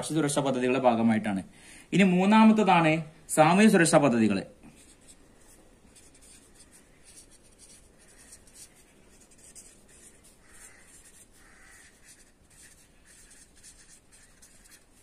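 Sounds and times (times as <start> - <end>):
marker scratching on paper: 4.7 - 15.0.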